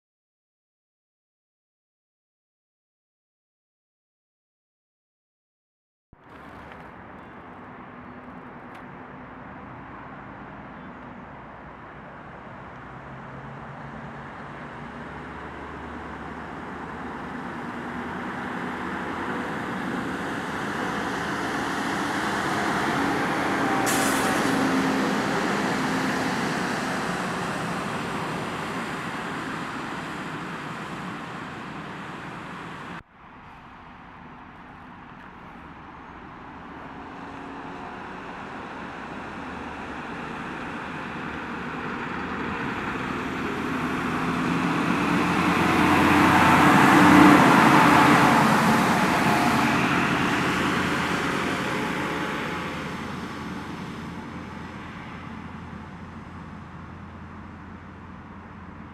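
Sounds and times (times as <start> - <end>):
diesel truck driving past: 6.2 - 58.9
distant traffic: 6.2 - 58.9
tyres hissing on wet road: 13.8 - 33.0, 36.7 - 55.8.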